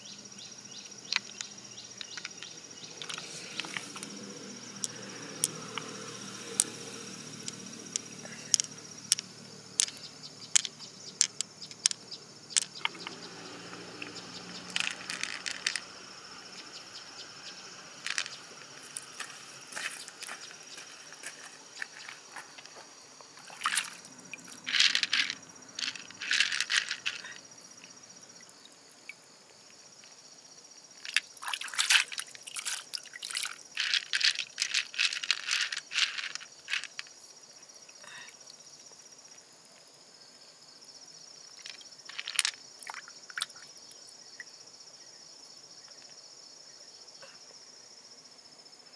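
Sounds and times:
high insect trill: 0.0s - 48.9s
pearls clicking against shell: 1.1s - 15.9s, 18.0s - 19.1s, 23.7s - 27.4s, 31.0s - 37.1s, 41.6s - 43.6s
water dripping: 23.4s - 26.2s, 31.0s - 34.6s, 42.8s - 44.5s.

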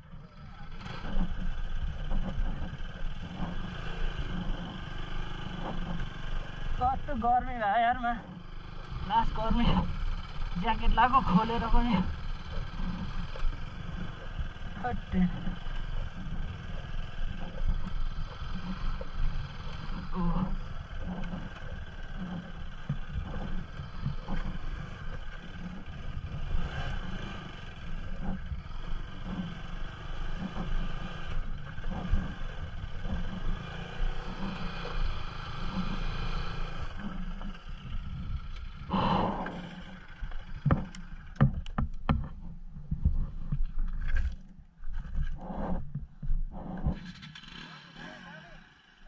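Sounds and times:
motorcycle engine at low speed: 0.0s - 49.0s
wind rumble on microphone: 9.0s - 47.2s.

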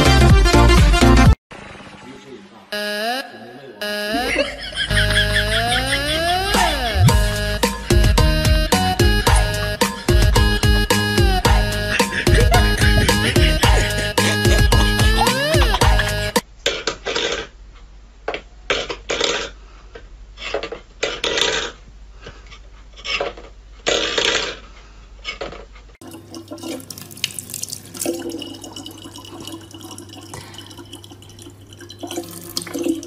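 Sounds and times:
kitchen tap running: 26.0s - 33.0s.

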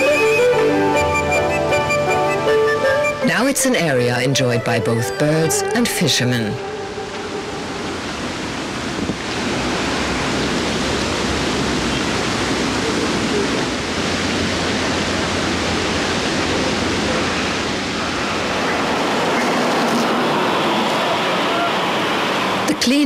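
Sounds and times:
steady rushing noise: 6.6s - 23.0s.

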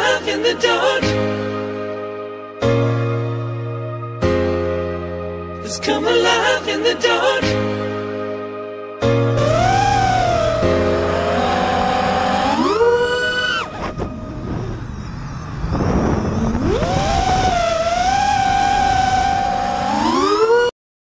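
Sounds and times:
drone motors whining: 9.4s - 20.7s.

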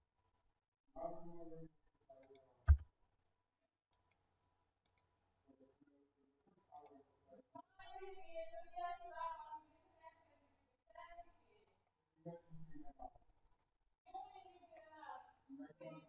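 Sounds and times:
computer mouse clicks: 2.2s - 2.8s, 3.9s - 4.2s, 4.8s - 5.1s
faint background voice: 14.1s - 16.0s.

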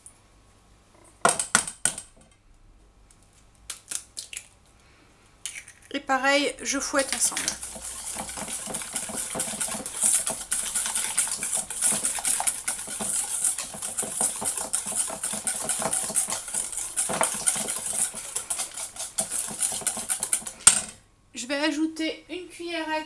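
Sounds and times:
whisk clicking against metal bowl: 7.0s - 21.0s.

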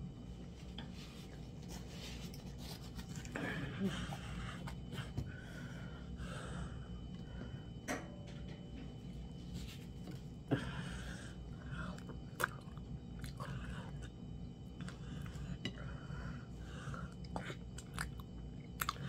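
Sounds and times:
steady low hum: 0.0s - 19.0s
person eating by hand: 0.4s - 5.4s, 9.0s - 19.0s.

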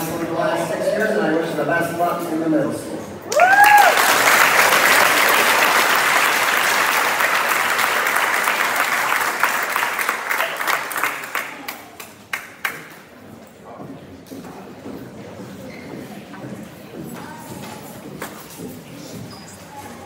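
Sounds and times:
whoop: 3.3s - 4.1s
audience applauding: 3.3s - 12.9s.

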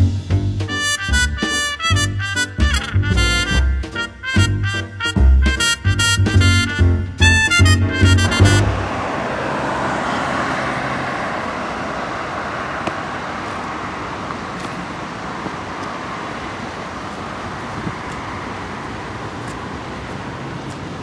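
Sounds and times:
swing-band jingle: 0.0s - 8.8s
city road traffic noise: 0.0s - 21.0s.

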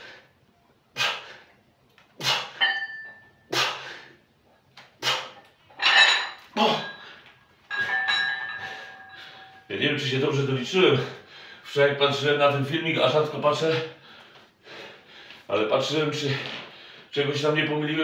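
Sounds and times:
weight plates clinking: 2.3s - 3.8s, 5.5s - 11.2s
barbell set down clanking: 5.8s - 7.0s, 7.7s - 9.6s.

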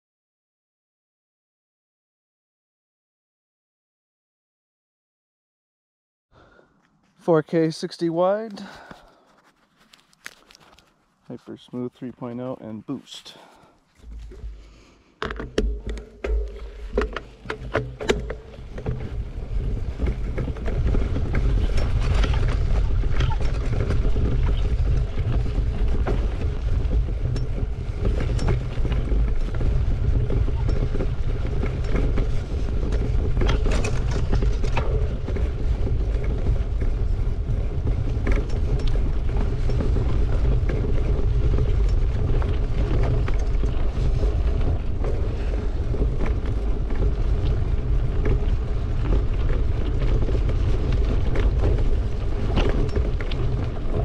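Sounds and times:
wind and vibration rumble on microphone: 8.3s - 54.0s
bike knocks and rattles: 13.9s - 54.0s.

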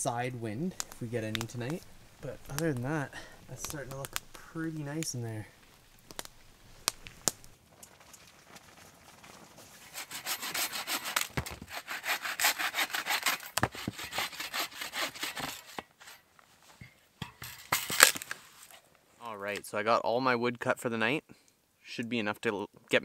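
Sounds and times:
hand saw cutting wood: 9.8s - 16.2s.

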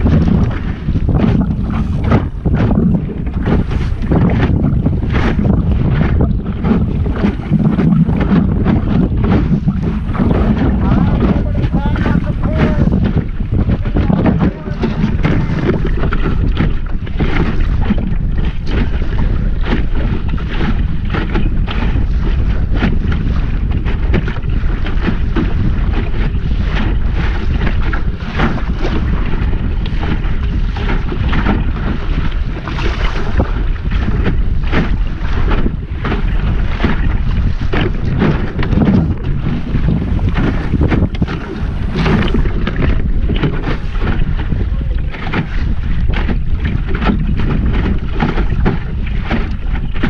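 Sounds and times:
water splashing against hull: 0.0s - 50.0s
wind buffeting microphone: 0.0s - 50.0s.

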